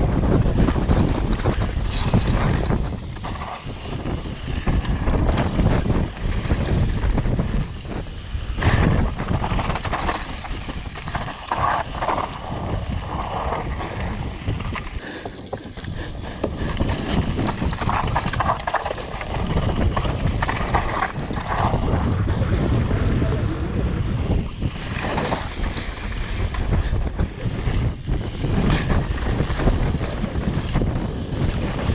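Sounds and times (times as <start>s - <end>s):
mountain bike rumbling and rattling: 0.0s - 31.9s
wind buffeting microphone: 0.0s - 31.9s.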